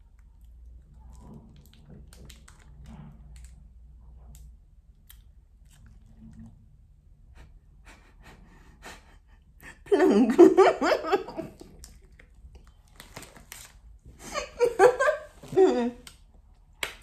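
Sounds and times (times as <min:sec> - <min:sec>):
faint chewing: 0:04.2 - 0:06.8, 0:11.5 - 0:13.7.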